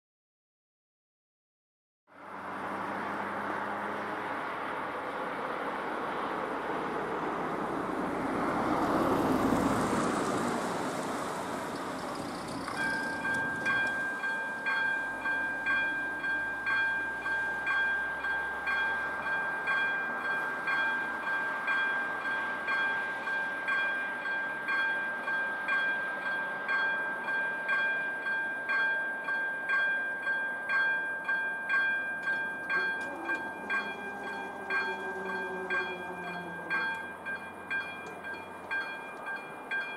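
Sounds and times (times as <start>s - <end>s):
car passing: 2.1s - 24.2s, 32.2s - 39.9s
pulsing electronic warning bell: 12.0s - 39.9s.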